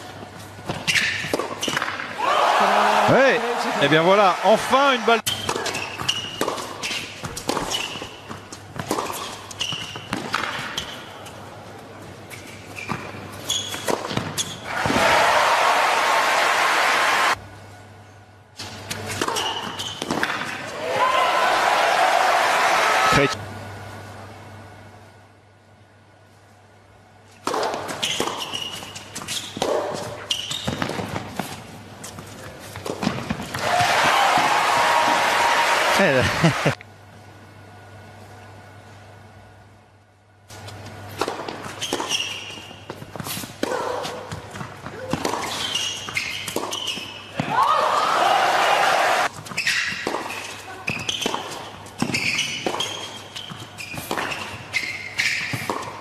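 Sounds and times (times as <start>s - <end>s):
shoes squeaking on court: 0.0s - 2.1s, 5.3s - 11.4s, 12.0s - 14.7s, 18.6s - 20.6s, 27.5s - 33.6s, 40.5s - 47.4s, 49.2s - 56.0s
crowd applause and cheering: 2.2s - 5.2s, 14.7s - 17.4s, 20.7s - 23.4s, 33.5s - 36.8s, 47.5s - 49.3s
tennis ball hits and bounces: 5.2s - 11.0s, 19.1s - 20.6s, 27.4s - 31.6s, 41.1s - 47.5s, 49.5s - 54.6s, 55.2s - 56.0s
tennis ball bounces: 55.5s - 56.0s.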